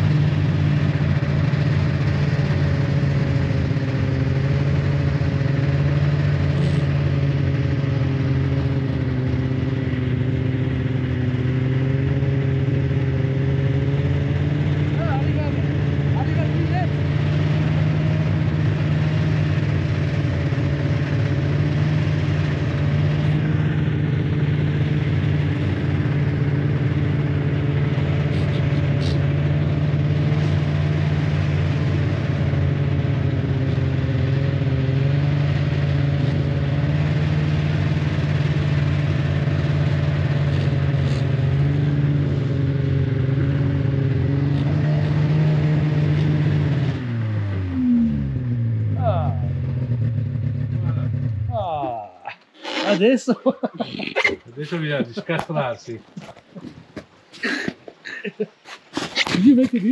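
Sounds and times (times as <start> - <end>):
snowmobile engine running: 0.0 - 56.8, 57.4 - 58.4, 59.0 - 59.9.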